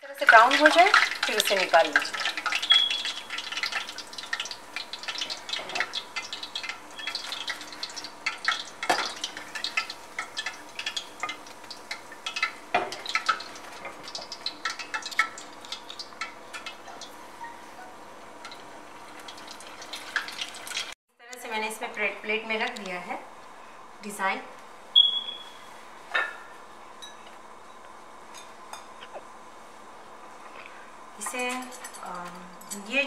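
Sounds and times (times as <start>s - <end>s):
hot oil crackling and popping: 0.1s - 21.0s.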